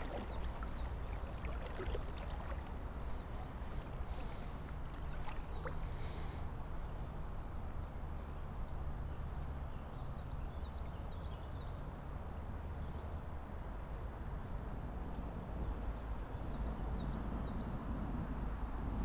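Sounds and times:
river water rushing: 0.0s - 5.9s
songbird chirping: 0.0s - 6.5s.

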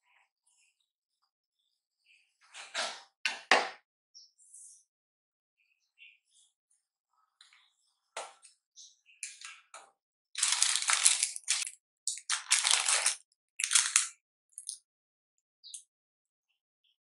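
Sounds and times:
parchment paper crinkling: 10.4s - 14.1s.

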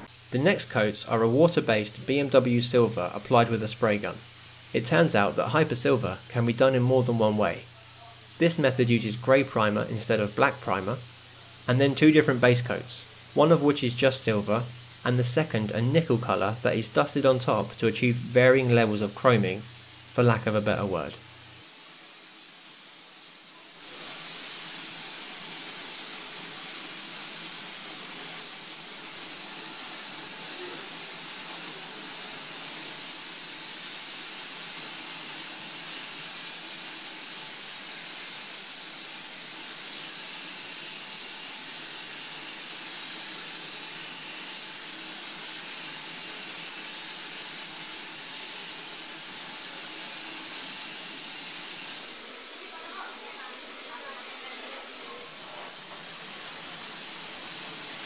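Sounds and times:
spray gun hissing: 0.0s - 58.0s.

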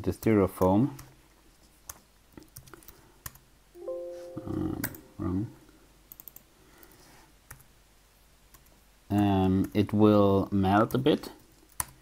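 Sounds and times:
wordless voice sound: 3.8s - 5.7s.

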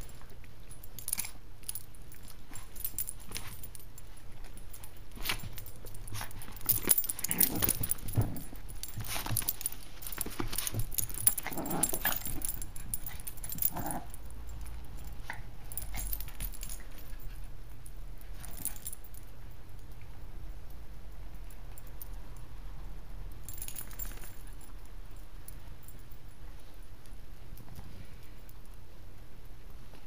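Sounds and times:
puppies scuffling: 0.0s - 19.2s
dog growls: 6.8s - 8.7s, 11.3s - 14.2s.

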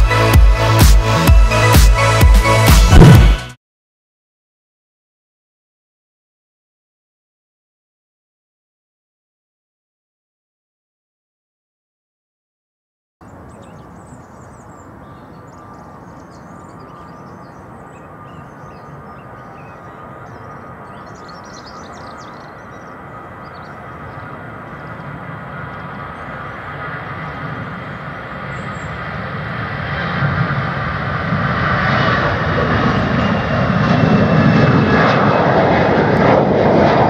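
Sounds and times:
jet engines rumbling: 13.2s - 37.0s.

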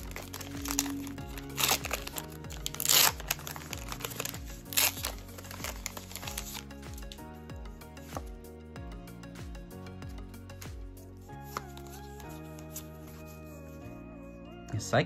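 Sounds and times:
foil wrapper crinkling: 0.0s - 7.2s
background music: 0.0s - 15.0s.

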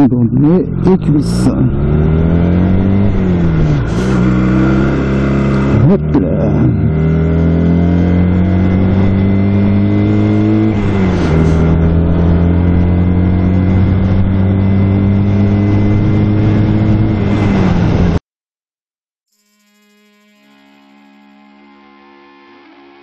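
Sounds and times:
motorcycle engine accelerating: 0.0s - 18.2s.

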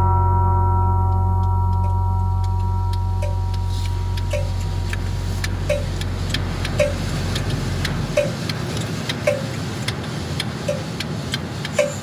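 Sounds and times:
short tone: 0.0s - 4.9s
turn signal ticking: 1.8s - 12.0s
van engine rumble: 2.3s - 12.0s.

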